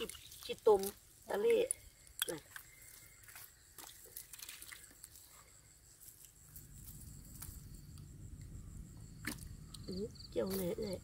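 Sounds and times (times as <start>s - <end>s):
insects droning: 0.0s - 11.0s
low rumble: 6.6s - 10.4s.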